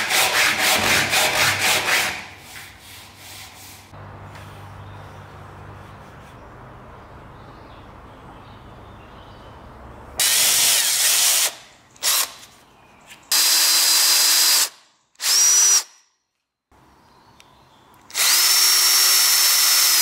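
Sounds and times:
power drill boring into wood: 13.3 - 15.9, 18.1 - 20.0.

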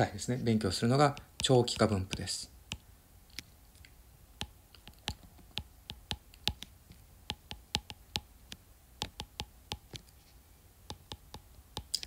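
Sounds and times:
stylus clicking on glass screen: 7.3 - 10.2.

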